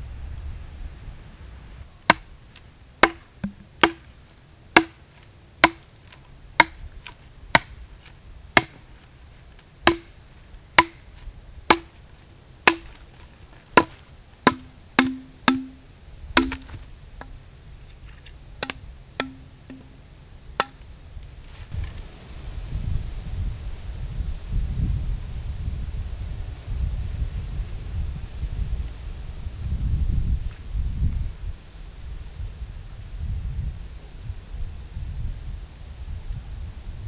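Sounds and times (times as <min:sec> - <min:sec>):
machete chopping bamboo: 0:02.1 - 0:02.3, 0:03.0 - 0:04.2, 0:04.8 - 0:09.1, 0:09.8 - 0:10.2, 0:10.8 - 0:17.4, 0:18.6 - 0:20.0, 0:20.6 - 0:20.8.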